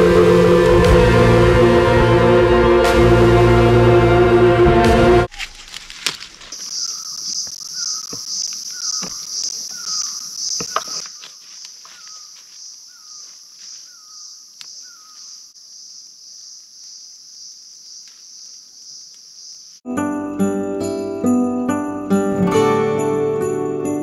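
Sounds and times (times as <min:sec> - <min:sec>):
insect chorus drone: 0:06.4 - 0:19.8.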